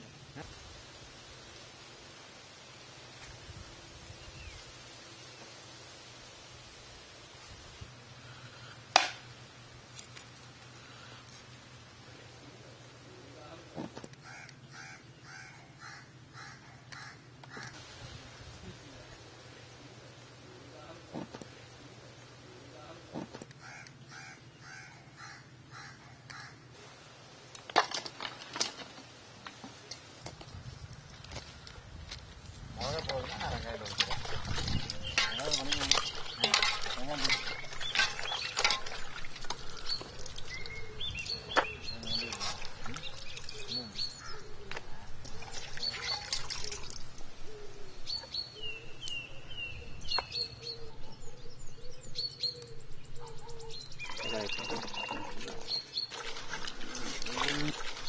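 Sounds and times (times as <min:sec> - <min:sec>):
birds chirping: 0:10.7 - 0:26.7, 0:32.8 - 0:58.0
crow cawing: 0:14.2 - 0:17.8, 0:23.6 - 0:26.6, 0:44.2 - 0:44.5.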